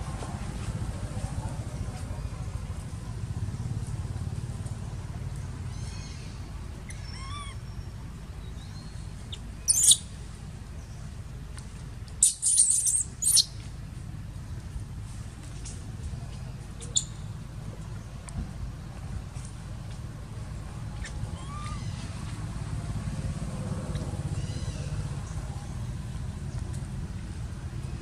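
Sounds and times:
macaques screaming: 6.9s - 7.6s, 21.3s - 22.2s
macaques squeaking: 6.9s - 7.8s, 9.3s - 10.1s, 12.2s - 13.6s, 16.8s - 17.2s, 20.9s - 22.3s.

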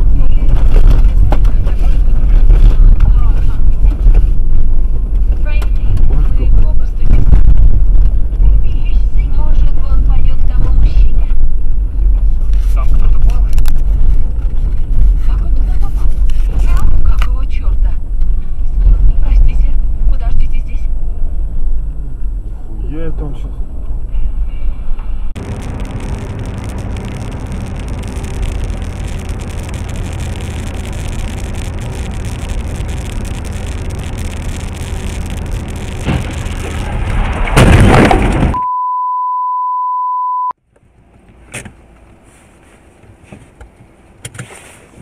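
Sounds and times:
car road and engine noise: 0.0s - 45.0s
loud car crash: 35.7s - 38.6s
censor bleep tone: 38.5s - 40.6s.

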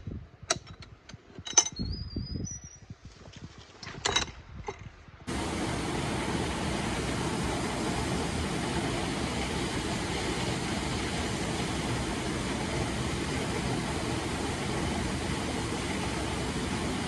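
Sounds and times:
waterfall rushing: 5.3s - 17.0s.

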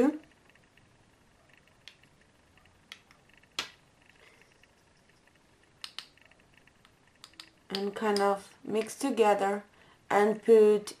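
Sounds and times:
makeup brushes clicking and tapping: 5.8s - 6.2s, 6.8s - 9.0s.

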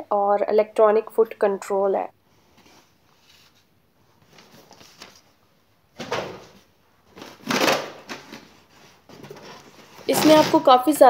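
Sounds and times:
paper rustling: 2.5s - 5.4s
styrofoam block scraping: 8.6s - 10.8s.

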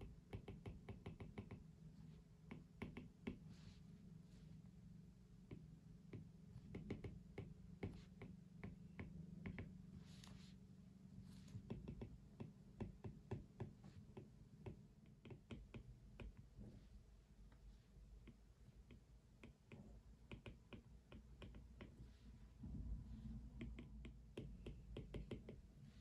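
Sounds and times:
light taps and clicks at desk: 0.0s - 1.7s, 2.4s - 3.4s, 5.4s - 10.4s, 11.5s - 16.7s, 18.2s - 22.0s, 23.6s - 25.7s
steady low hum: 0.0s - 26.0s.

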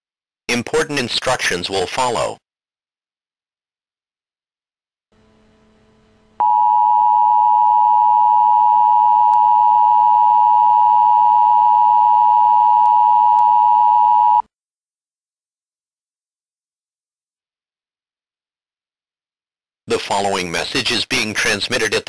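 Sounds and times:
faint hum: 5.2s - 14.4s
loud two-tone alarm: 6.4s - 14.4s.

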